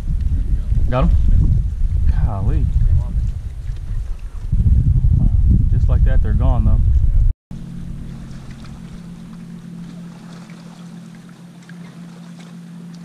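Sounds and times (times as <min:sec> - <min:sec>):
electric trolling motor humming: 0:07.5 - 0:13.0.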